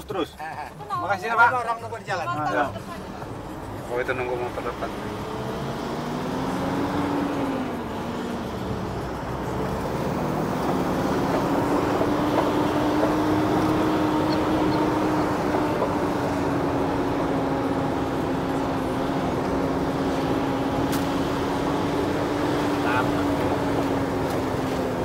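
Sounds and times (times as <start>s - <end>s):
engine hum inside vehicle cab: 0.0s - 25.0s
tyre and road noise: 0.0s - 25.0s.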